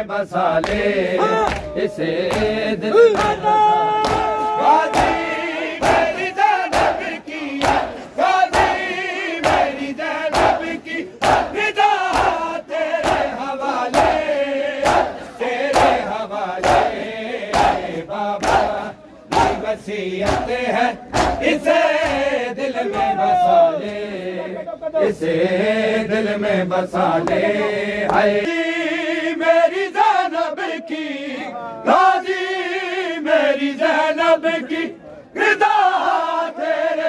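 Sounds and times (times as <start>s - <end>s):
crowd chanting: 0.0s - 37.0s
hands slapping chests: 0.6s - 3.4s, 4.0s - 8.8s, 9.4s - 14.2s, 21.1s - 22.3s.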